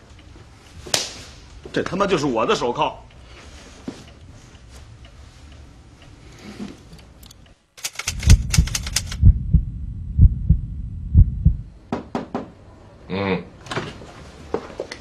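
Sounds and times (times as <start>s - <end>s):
sharp ticks: 7.2s - 9.6s
heartbeat double thump: 8.1s - 11.8s.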